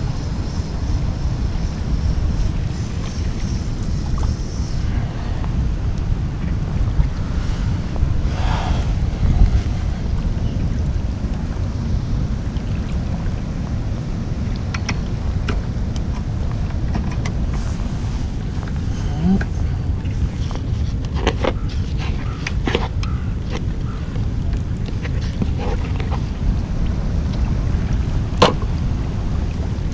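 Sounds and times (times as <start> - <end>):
wind rumbling on microphone: 0.0 - 29.9.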